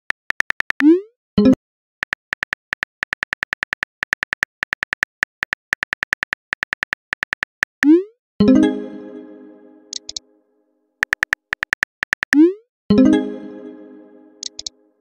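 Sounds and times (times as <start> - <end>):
keyboard tap clicks: 9.9 - 10.2, 14.4 - 14.7.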